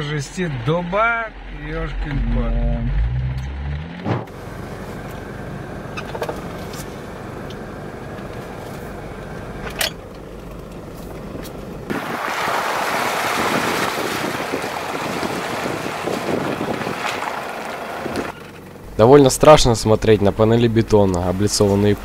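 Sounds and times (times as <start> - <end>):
engine and tyres rumbling: 0.0 - 22.0
wind on microphone: 13.1 - 17.3.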